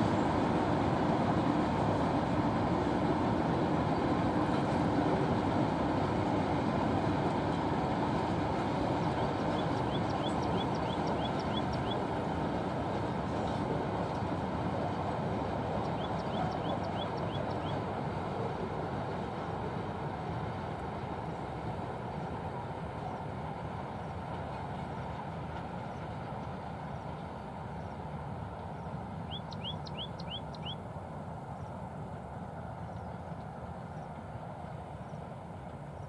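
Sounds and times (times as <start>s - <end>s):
distant freight train rumbling: 0.0s - 36.0s
bird chirping: 9.2s - 12.0s, 15.8s - 17.8s, 29.3s - 30.8s.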